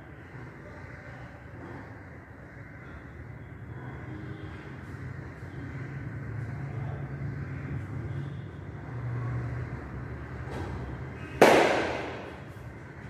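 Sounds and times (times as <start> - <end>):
steady low hum: 0.0 - 13.0
sudden loud bang: 11.4 - 12.3.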